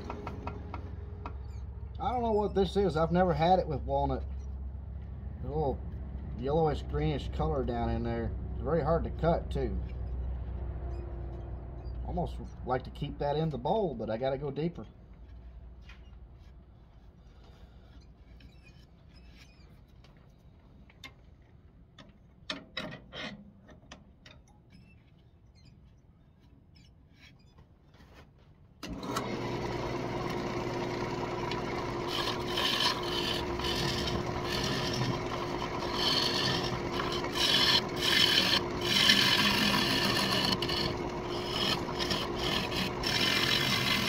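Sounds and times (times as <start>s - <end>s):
sharp knocks: 0.0s - 1.4s
lathe motor whine: 28.8s - 44.0s
gouge scraping wood: 31.3s - 44.0s.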